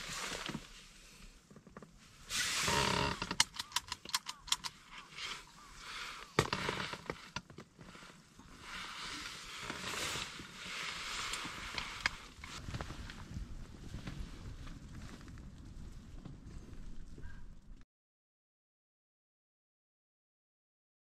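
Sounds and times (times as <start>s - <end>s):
clothing rustling: 0.0s - 3.1s, 5.2s - 17.0s.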